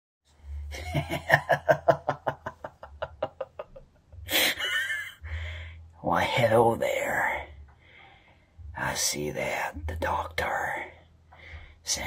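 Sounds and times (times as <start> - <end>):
man laughing: 0.7 - 5.2.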